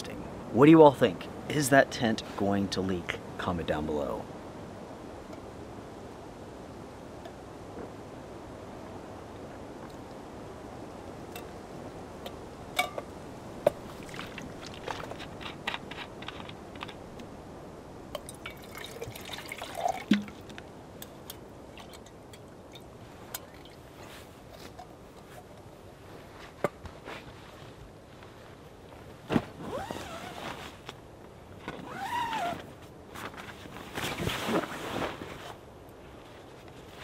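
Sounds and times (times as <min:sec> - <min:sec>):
faint steady hiss: 0:00.0 - 0:37.0
camp gear clicks and knocks: 0:12.2 - 0:17.3, 0:31.6 - 0:34.7.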